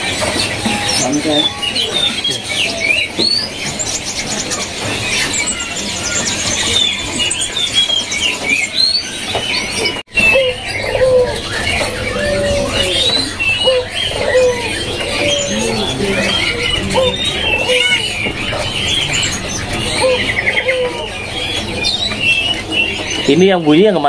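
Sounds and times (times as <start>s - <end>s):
songbirds chirping and whistling: 0.0s - 24.0s
dove cooing: 10.1s - 23.3s.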